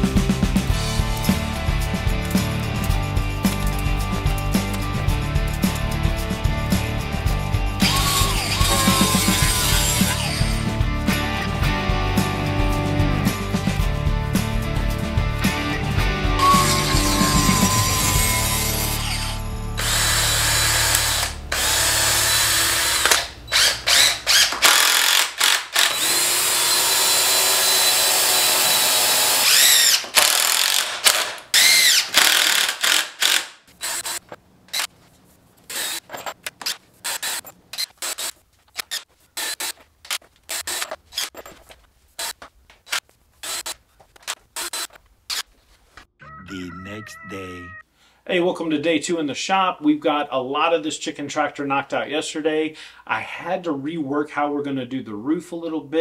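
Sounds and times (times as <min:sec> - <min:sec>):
power driver driving screws into wood: 0:07.8 - 0:10.5, 0:17.0 - 0:34.9, 0:35.7 - 0:45.5.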